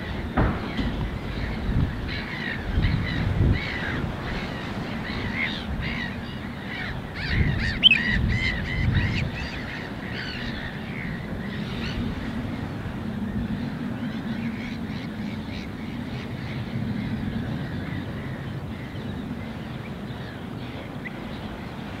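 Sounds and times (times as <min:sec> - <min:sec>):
low rumble: 0:00.0 - 0:04.3
wild birds calling: 0:00.0 - 0:22.0.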